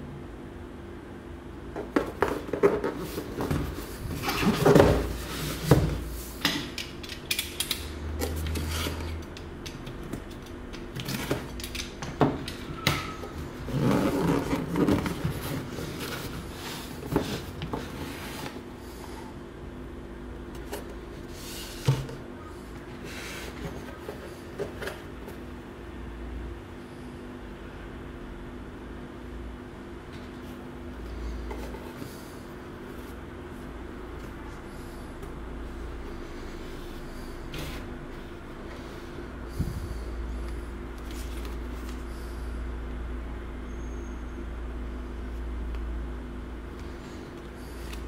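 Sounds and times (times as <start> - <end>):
faint steady hum: 0.0 - 48.0
cardboard box rustling and scraping: 1.9 - 6.3, 13.4 - 18.6.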